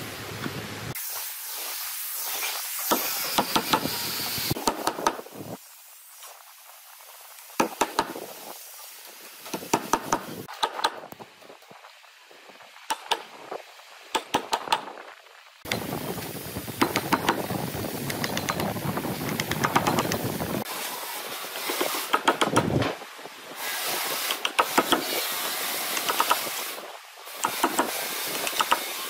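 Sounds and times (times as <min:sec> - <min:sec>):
steady hiss: 0:00.9 - 0:10.5.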